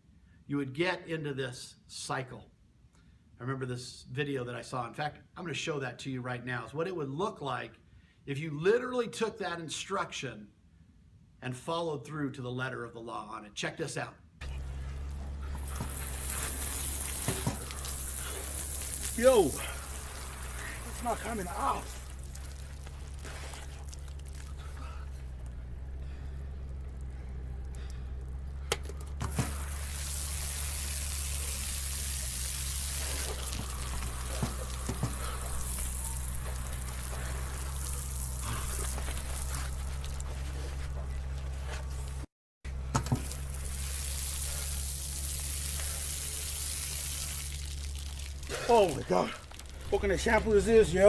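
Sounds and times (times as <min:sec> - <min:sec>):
low hum: 0:14.4 - 0:48.7
shower spray hissing on concrete: 0:14.5 - 0:24.6, 0:29.2 - 0:40.2, 0:43.0 - 0:50.6.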